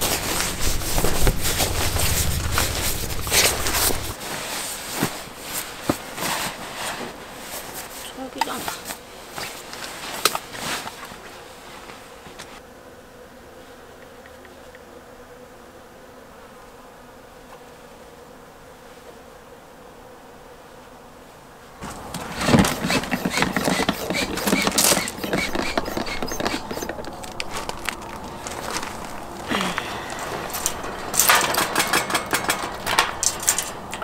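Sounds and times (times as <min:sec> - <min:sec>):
faint hum: 0:00.0 - 0:04.2, 0:23.8 - 0:34.0
clattering and handling: 0:21.8 - 0:34.0
small pump buzzing: 0:21.8 - 0:34.0.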